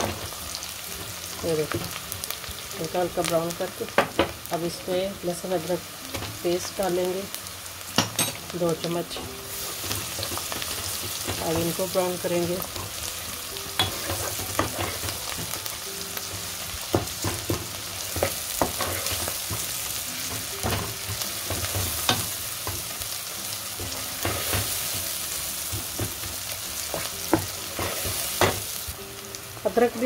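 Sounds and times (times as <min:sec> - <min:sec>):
onions sizzling in a pot: 0:00.0 - 0:30.0
wooden spoon scraping a pan: 0:18.1 - 0:19.7, 0:26.9 - 0:28.6.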